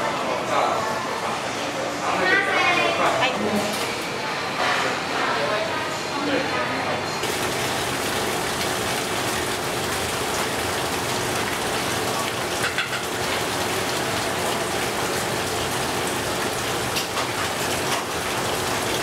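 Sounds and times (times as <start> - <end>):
water splashing into a tub: 7.2 - 19.0.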